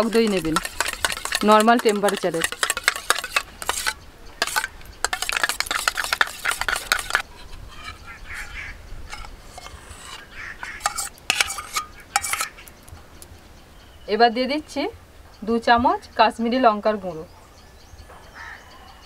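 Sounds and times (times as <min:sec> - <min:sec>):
metal spoon clinking in steel cup: 0:00.0 - 0:07.2, 0:09.1 - 0:12.6
spoon scraping cup: 0:00.0 - 0:12.7.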